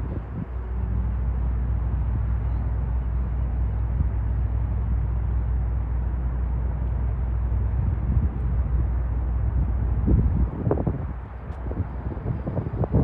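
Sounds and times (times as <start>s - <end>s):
ferry engines droning: 0.0s - 13.0s.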